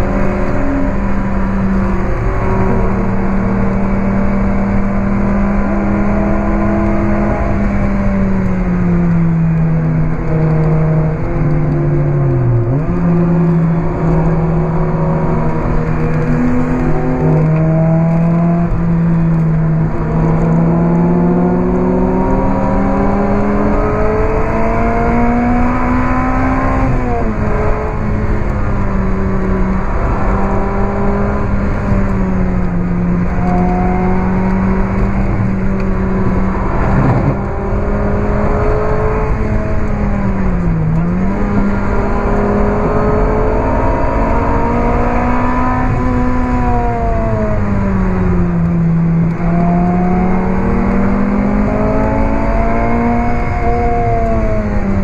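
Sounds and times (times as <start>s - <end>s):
car engine at high revs: 0.0s - 55.0s.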